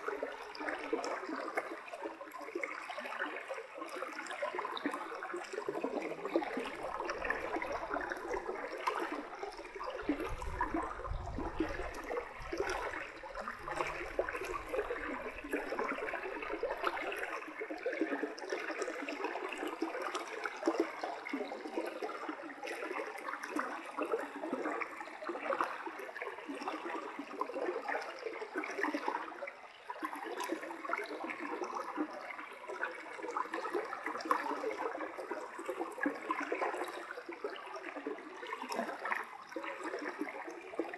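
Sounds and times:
stream water rushing: 0:06.4 - 0:17.2.

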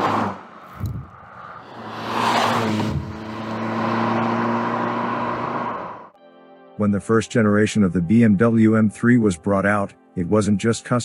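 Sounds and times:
car engine driving past: 0:00.1 - 0:06.1.

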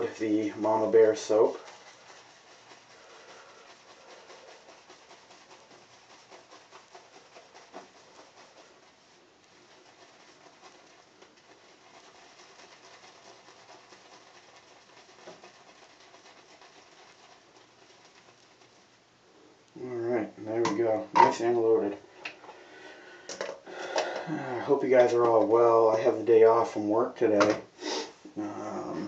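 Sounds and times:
shaving brush swishing on soap: 0:00.0 - 0:19.0.

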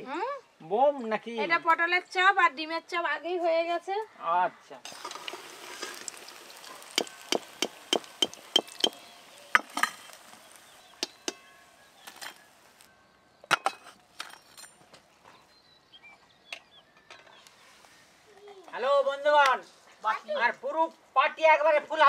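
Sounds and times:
oil sizzling: 0:04.8 - 0:12.9.

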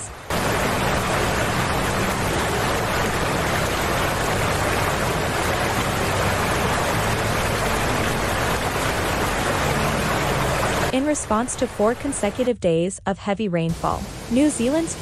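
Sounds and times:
flooded river rushing: 0:00.0 - 0:11.1.

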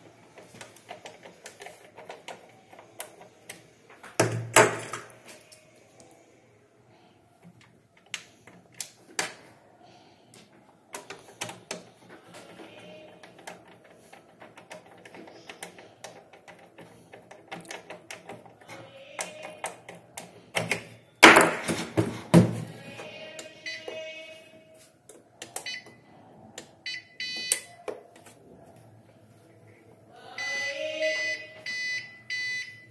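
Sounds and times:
plastic rattles: 0:10.9 - 0:22.7.

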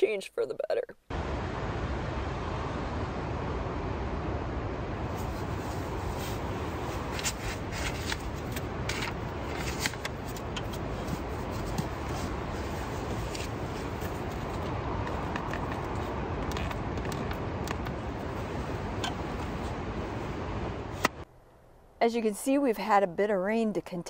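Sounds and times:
rain on tent fabric: 0:04.9 - 0:21.1
sleeping bag rustling: 0:05.1 - 0:16.8.

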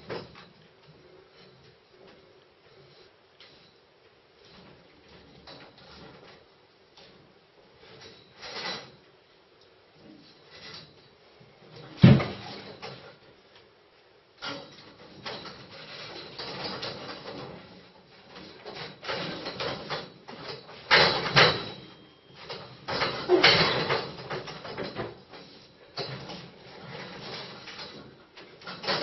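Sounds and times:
metal clanks: 0:14.4 - 0:29.0
scaffold tubes knocking and creaking: 0:14.4 - 0:29.0.

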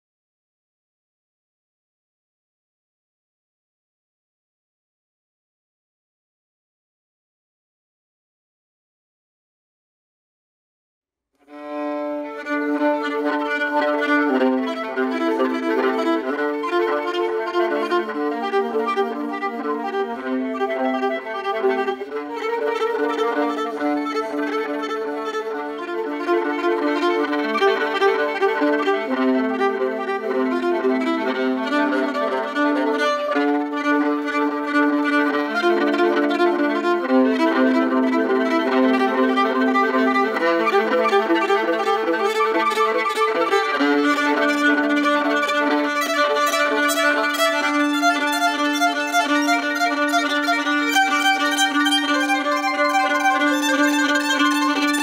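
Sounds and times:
solo fiddle bowed: 0:11.4 - 0:55.0.

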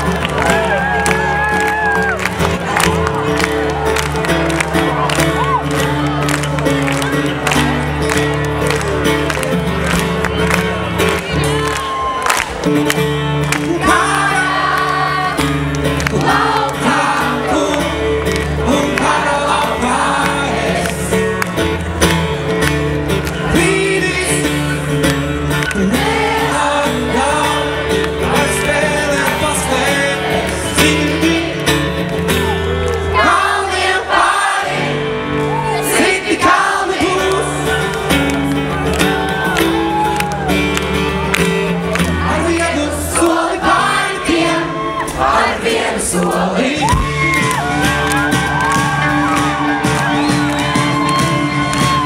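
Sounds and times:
man singing: 0:13.6 - 0:15.2, 0:16.1 - 0:21.2, 0:23.4 - 0:32.0, 0:36.1 - 0:38.2, 0:42.2 - 0:47.8
live rock band: 0:46.2 - 0:52.0.

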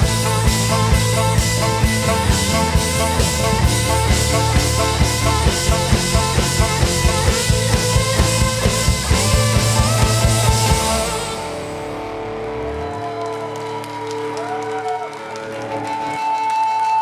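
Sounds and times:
steady drum beat: 0:00.0 - 0:11.9
rock band instrumental: 0:00.0 - 0:17.0.

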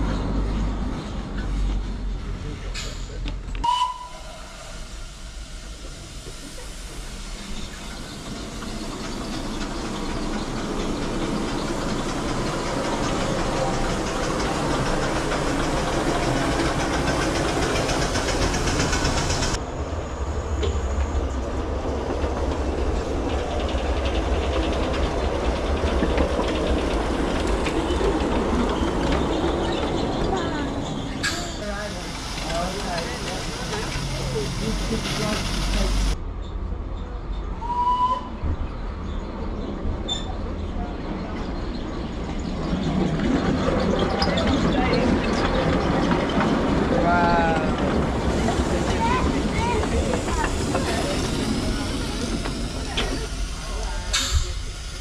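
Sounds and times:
miniature train clickety-clack: 0:08.2 - 0:19.6, 0:21.9 - 0:36.2, 0:41.0 - 0:55.0
brief high squeak: 0:40.1 - 0:40.4.

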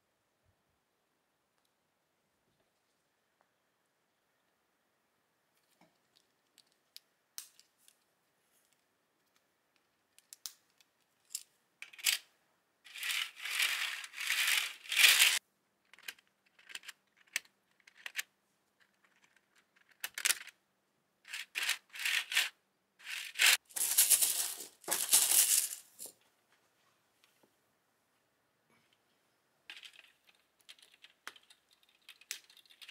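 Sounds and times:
plastic links clicking and rattling: 0:23.3 - 0:26.1, 0:29.7 - 0:32.9.

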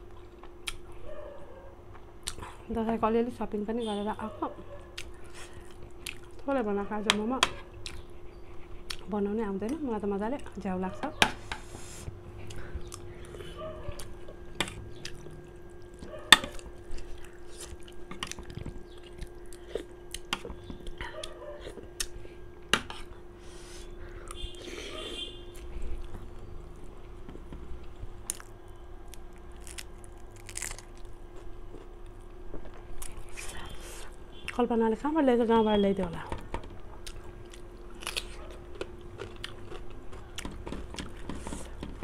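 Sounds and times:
faint steady hum: 0:00.0 - 0:42.0
chewing and biting food: 0:04.7 - 0:06.5, 0:07.7 - 0:09.1, 0:12.3 - 0:22.3, 0:25.6 - 0:33.7, 0:36.7 - 0:42.0.

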